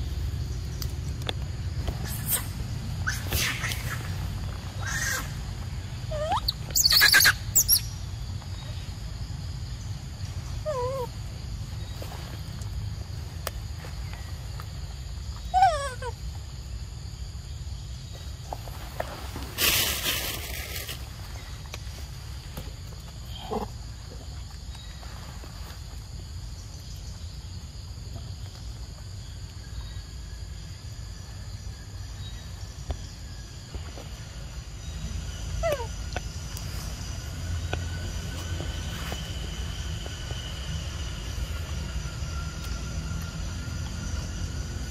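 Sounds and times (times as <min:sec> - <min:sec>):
high-pitched insect drone: 0:29.1 - 0:44.9.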